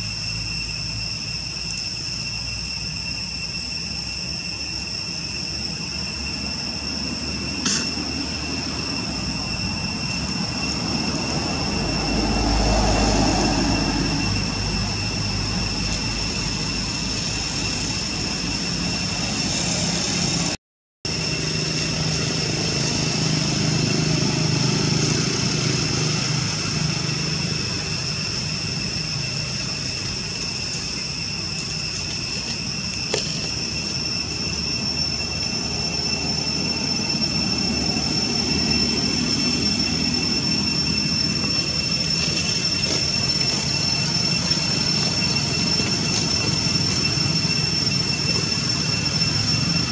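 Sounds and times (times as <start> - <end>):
high-pitched insect drone: 0.0 - 49.9.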